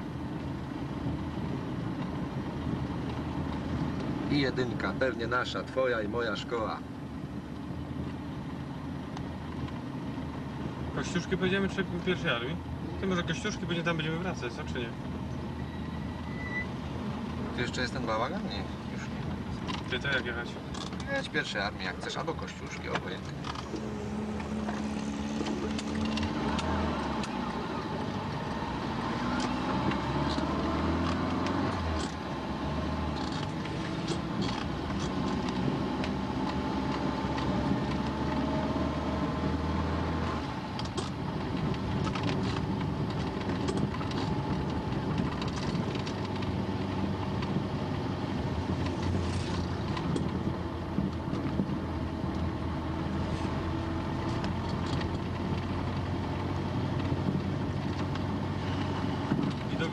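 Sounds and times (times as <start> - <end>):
car engine hum: 0.0 - 59.9
road noise: 0.0 - 59.9
small clicks and rattles: 22.2 - 27.4, 33.1 - 38.4, 40.7 - 47.6, 54.2 - 59.8.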